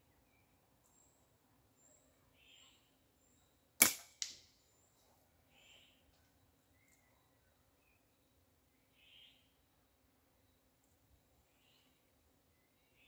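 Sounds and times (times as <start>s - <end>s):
faint bird chirps: 0.0s - 3.8s, 4.6s - 13.0s
slingshot band snap: 3.8s - 4.4s.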